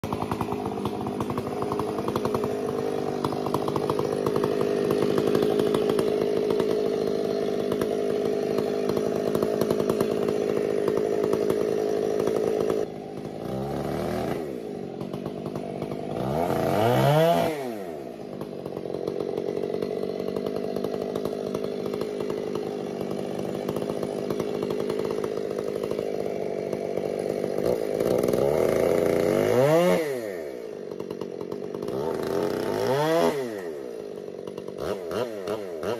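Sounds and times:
chainsaw engine revving: 0.0s - 35.9s.

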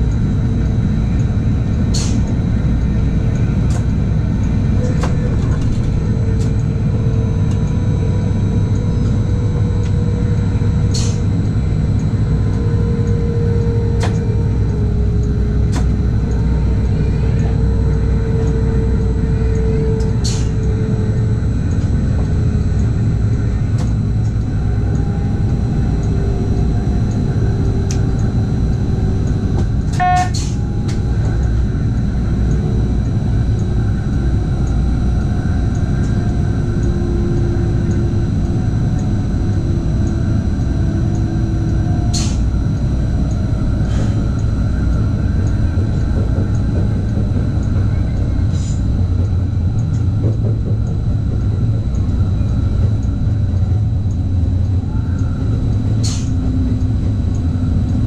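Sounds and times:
faint whine: 0.0s - 58.0s
train wheels rumbling on rail: 0.0s - 58.0s
short tone: 30.0s - 30.4s.

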